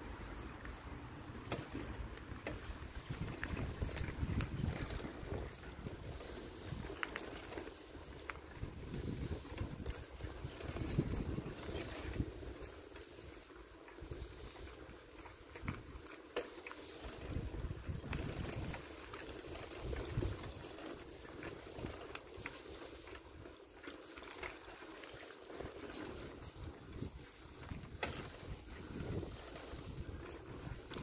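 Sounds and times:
wind buffeting microphone: 0.0s - 13.4s, 17.0s - 23.5s, 25.9s - 31.0s.

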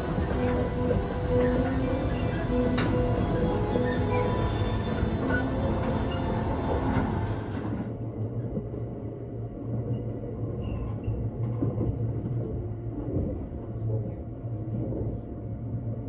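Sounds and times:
music: 0.0s - 7.8s
electric train running: 0.0s - 8.0s.

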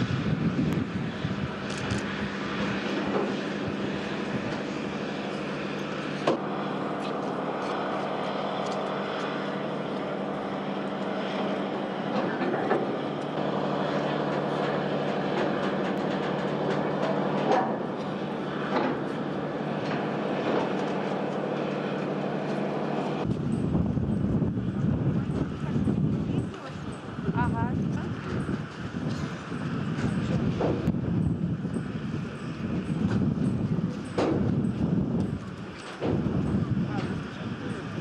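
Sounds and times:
train engine drone: 0.0s - 38.0s
rail cars clanking: 11.4s - 23.6s.

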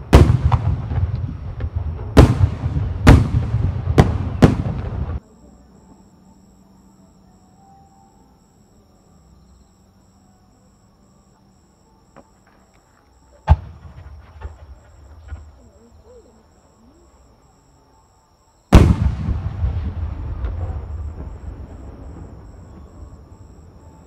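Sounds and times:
firework boom with crackle: 0.0s - 5.2s, 18.7s - 23.6s.

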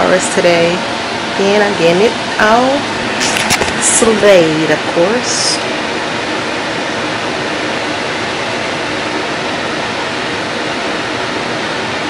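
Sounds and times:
rush of blowing air: 0.8s - 12.0s.

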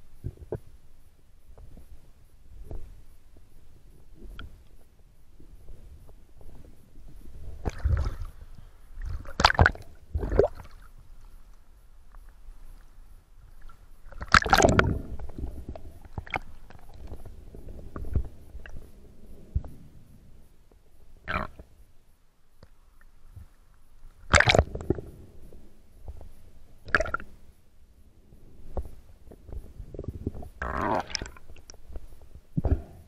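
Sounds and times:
water splashing and gurgling: 7.4s - 11.0s, 13.6s - 18.9s, 24.3s - 25.0s, 26.8s - 27.3s, 29.9s - 31.9s.

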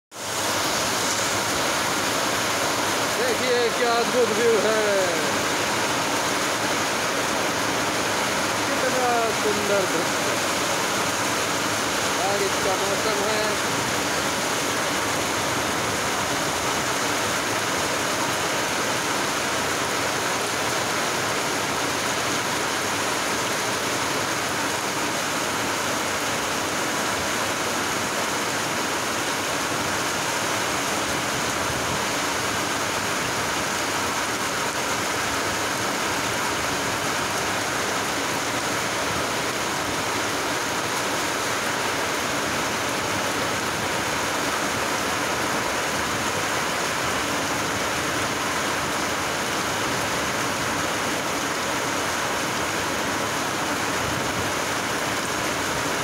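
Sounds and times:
rain falling on river: 0.1s - 56.0s.

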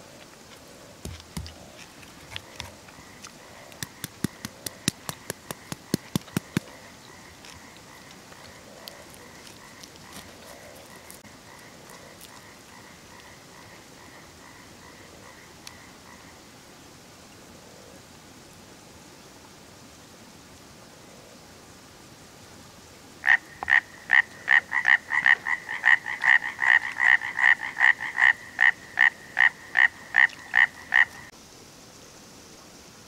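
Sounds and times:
frog chirping: 1.0s - 16.4s, 23.2s - 31.3s.

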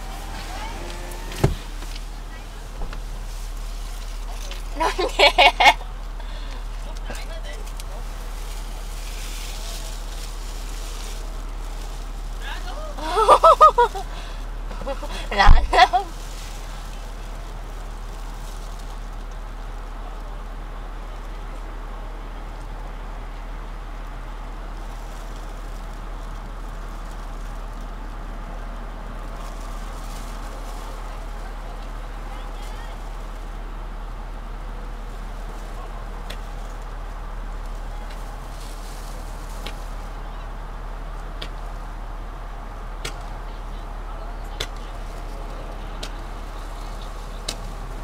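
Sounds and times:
car engine idling: 0.0s - 48.0s
fireworks popping: 14.7s - 19.2s.

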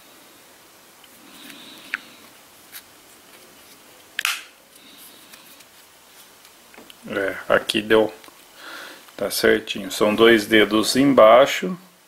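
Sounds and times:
sharp plastic snap: 4.2s - 4.5s.

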